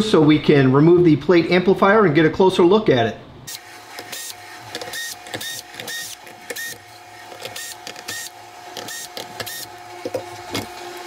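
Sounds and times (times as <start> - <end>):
cordless drill motor bursts: 3.5 - 11.0.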